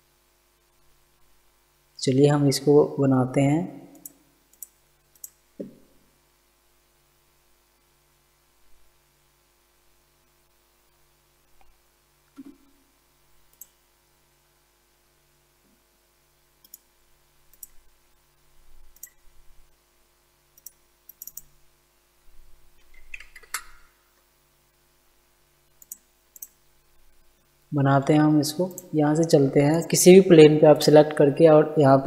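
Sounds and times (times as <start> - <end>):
low electrical hum: 0.0 - 32.0
computer mouse clicking: 3.9 - 5.8, 13.5 - 13.8, 16.6 - 16.9, 17.5 - 17.8, 18.9 - 19.2, 20.6 - 21.5, 22.8 - 23.9, 25.7 - 26.6, 28.7 - 28.9.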